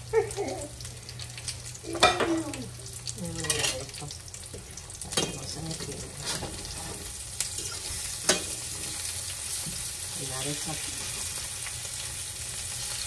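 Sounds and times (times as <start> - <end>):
plantain slices sizzling in oil: 0.0 - 13.0
metal spoon clinking on pan: 7.6 - 8.6.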